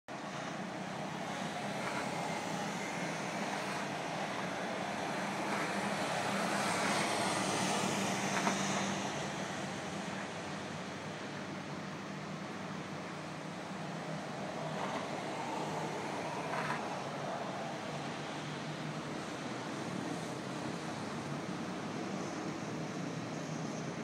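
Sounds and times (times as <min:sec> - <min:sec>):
road traffic noise: 0:00.1 - 0:24.0
car passing at speed: 0:00.2 - 0:10.8, 0:13.8 - 0:21.4.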